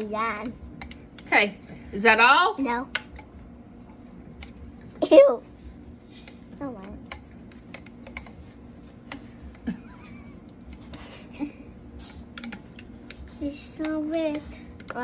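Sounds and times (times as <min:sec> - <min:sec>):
spoon scraping and tapping bowl: 0:06.2 - 0:09.6, 0:12.0 - 0:15.0.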